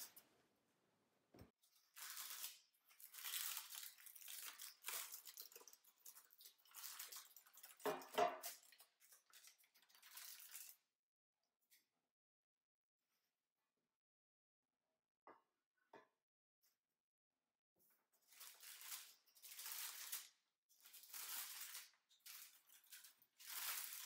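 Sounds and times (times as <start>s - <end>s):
parchment paper crinkling: 1.8s - 10.8s, 18.3s - 24.0s.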